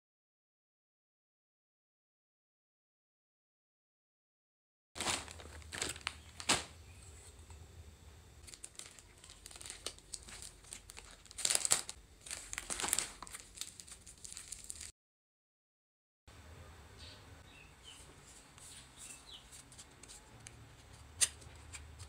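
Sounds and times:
crinkling and rustling: 5.0s - 7.6s, 8.4s - 14.9s.

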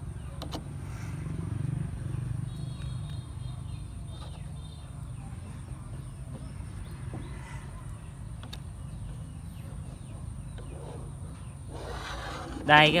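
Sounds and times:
low street rumble: 0.0s - 13.0s.

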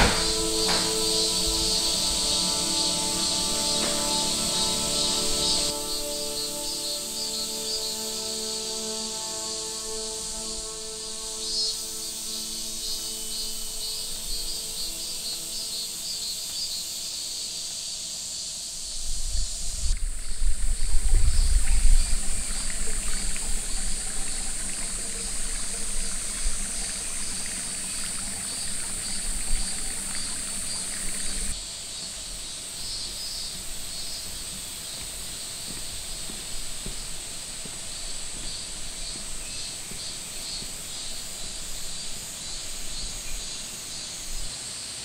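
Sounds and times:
steady high hiss: 0.0s - 45.0s
wind rumble on microphone: 18.9s - 31.5s.

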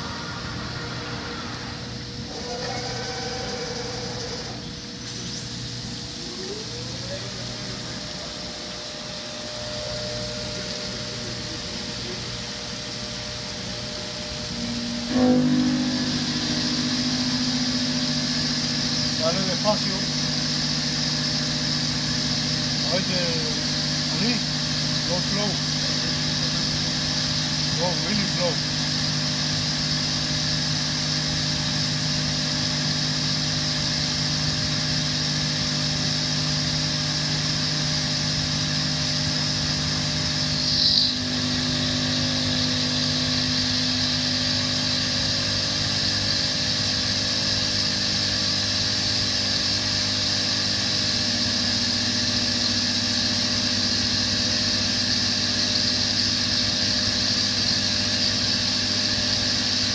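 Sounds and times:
stone router spindle humming and whining: 0.0s - 4.7s, 6.1s - 59.9s
high-pitched cutting burst: 14.3s - 25.6s.

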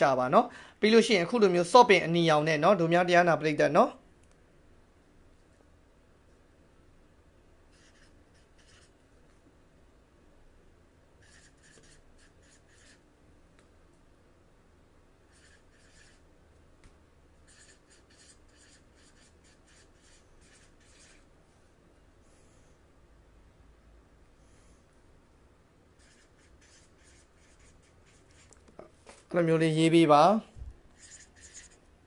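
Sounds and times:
marker scratching on paper: 7.7s - 9.0s, 11.2s - 13.0s, 15.3s - 16.3s, 17.4s - 21.3s, 26.0s - 28.6s, 30.9s - 31.8s.

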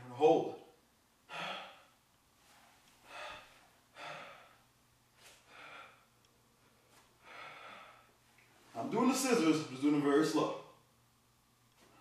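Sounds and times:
man breathing heavily: 1.2s - 8.3s.

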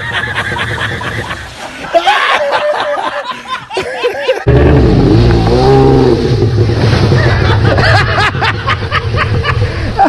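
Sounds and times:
model jet ski motor revving: 4.5s - 6.7s.

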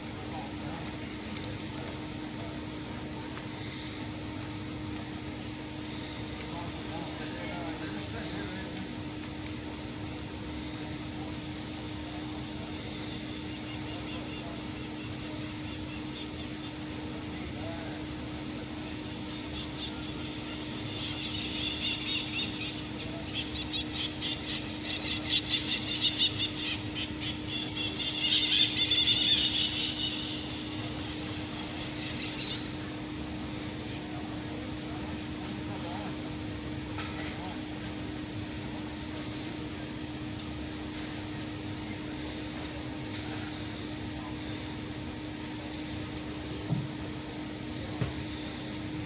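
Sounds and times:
steady mechanical hum: 0.0s - 49.0s
marmosets chirping: 19.0s - 32.9s.

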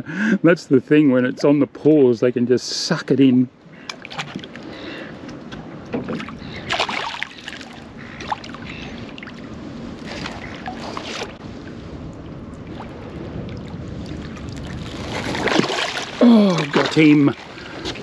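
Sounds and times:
wind and water wash: 0.0s - 18.0s
fish splashing at water surface: 6.6s - 9.4s, 13.5s - 18.0s.

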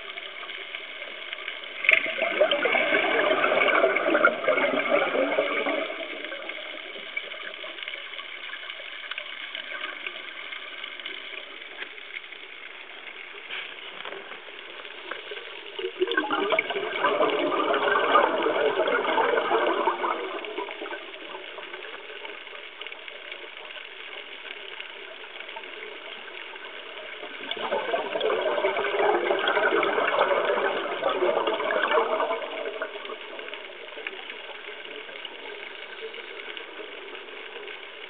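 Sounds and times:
faint hiss: 0.0s - 17.5s, 18.2s - 38.0s
air bubbling underwater: 1.8s - 7.5s, 15.8s - 21.5s, 27.4s - 33.3s.

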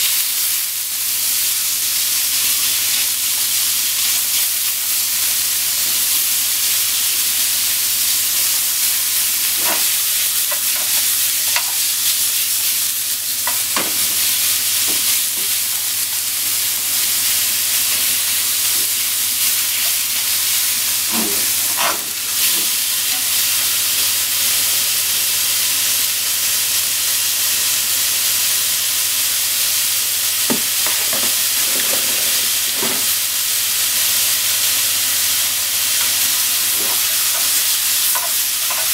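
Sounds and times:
meat sizzling in frying pan: 0.0s - 38.9s
chopsticks scraping pan: 9.4s - 11.9s, 20.6s - 23.3s, 36.0s - 38.9s.

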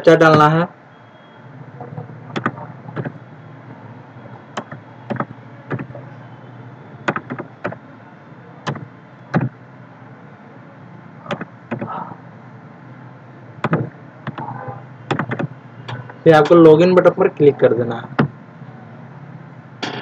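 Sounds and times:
keyboard keys clicking: 2.3s - 3.2s, 4.6s - 5.9s, 7.1s - 7.8s, 11.3s - 11.9s, 13.6s - 14.5s, 15.1s - 16.0s.

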